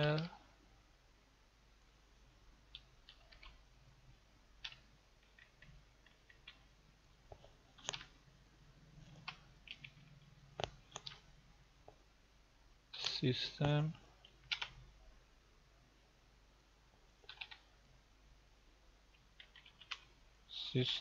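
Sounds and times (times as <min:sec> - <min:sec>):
keyboard typing clicks: 0:02.7 - 0:03.6, 0:04.6 - 0:06.6, 0:07.8 - 0:08.1, 0:09.1 - 0:11.2, 0:14.2 - 0:14.8, 0:17.2 - 0:17.7, 0:19.4 - 0:20.1.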